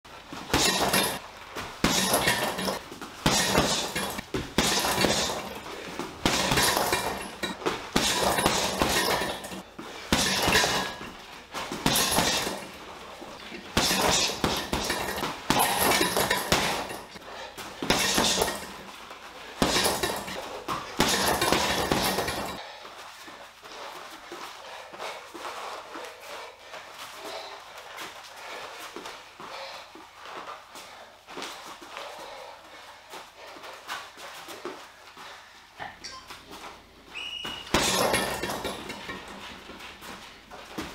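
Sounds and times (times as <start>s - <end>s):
jingling rattle of swinging bag: 0.1s - 35.4s, 37.4s - 40.9s
boxing gloves hitting heavy bag: 0.3s - 18.9s, 19.5s - 22.6s, 37.4s - 40.9s.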